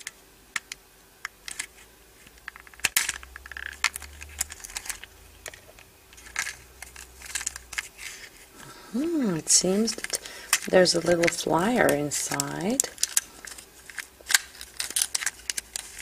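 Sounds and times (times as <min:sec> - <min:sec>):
plastic parts clicking and tapping: 0:00.0 - 0:08.2, 0:09.6 - 0:16.0.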